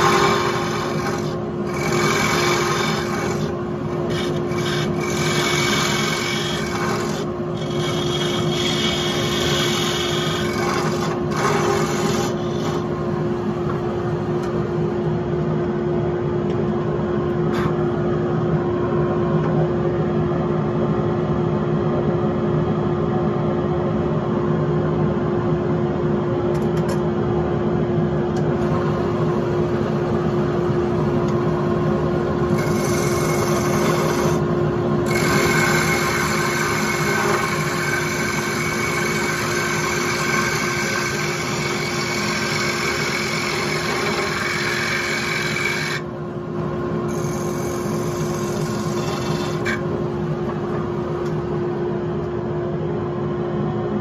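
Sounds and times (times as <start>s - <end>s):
turning tool cutting wood: 0.0s - 12.9s, 32.5s - 46.1s, 47.1s - 49.9s
wood lathe motor hum: 0.0s - 14.5s, 32.4s - 46.1s, 47.0s - 50.9s.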